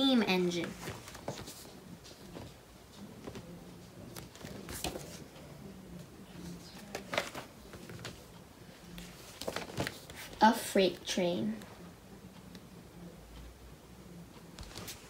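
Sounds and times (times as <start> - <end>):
faint low hum: 0.0 - 15.0
paper pages rustling: 0.6 - 5.2, 6.4 - 8.4, 9.0 - 10.4, 14.6 - 15.0.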